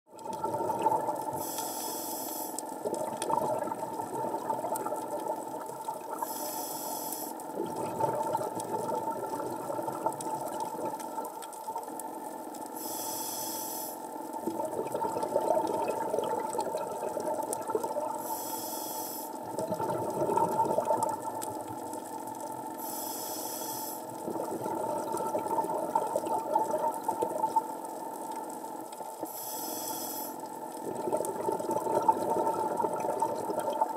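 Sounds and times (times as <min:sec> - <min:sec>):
bubbles gurgling: 0:00.1 - 0:01.5, 0:02.8 - 0:06.4, 0:07.5 - 0:12.0, 0:14.4 - 0:18.3, 0:19.4 - 0:22.7, 0:24.1 - 0:29.3, 0:30.6 - 0:33.9
regulator hissing inhale: 0:01.4 - 0:02.6, 0:06.2 - 0:07.4, 0:12.8 - 0:14.1, 0:18.2 - 0:19.4, 0:22.8 - 0:24.1, 0:29.2 - 0:30.4.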